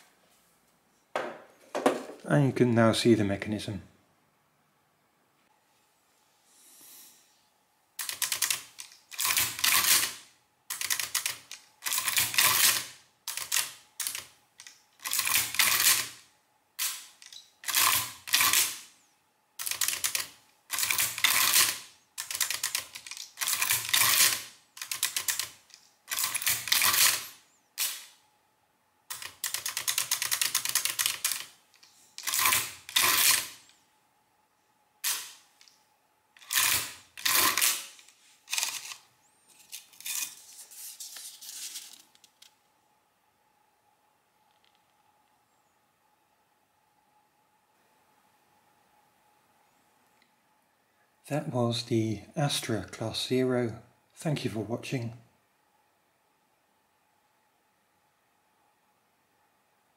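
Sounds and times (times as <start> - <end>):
adding machine clattering and ratcheting: 8.0 - 16.2, 16.8 - 18.8, 19.6 - 27.9, 29.1 - 31.5, 32.2 - 33.6, 36.4 - 39.0
rapid mechanical clicking: 8.0 - 16.2, 16.8 - 18.9, 19.6 - 28.1, 29.1 - 33.6, 36.4 - 39.0.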